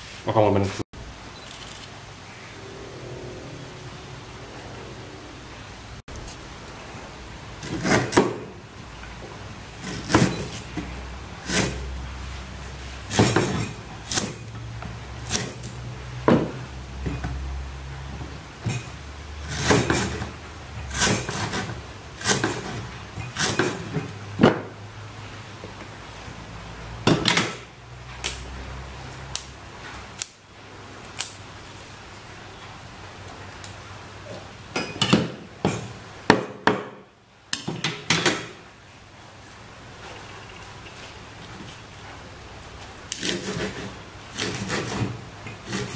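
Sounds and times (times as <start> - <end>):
knife chopping on wooden board: 21.0 - 22.8.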